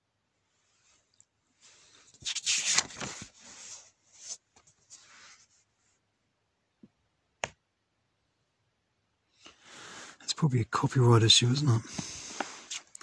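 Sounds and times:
book page turning: 2.1s - 4.8s, 11.9s - 13.0s.

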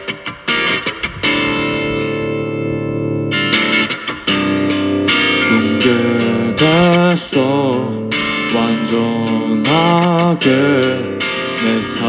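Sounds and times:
electric guitar chords: 0.0s - 12.0s
man singing wordless note: 5.4s - 12.0s.

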